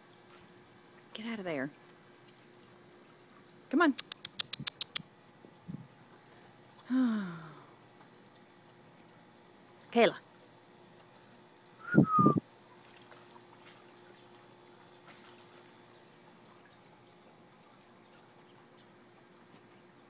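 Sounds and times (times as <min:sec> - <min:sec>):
faint steady hum: 0:00.0 - 0:20.0
puppy paws splashing in puddles: 0:01.7 - 0:05.5, 0:12.6 - 0:18.8.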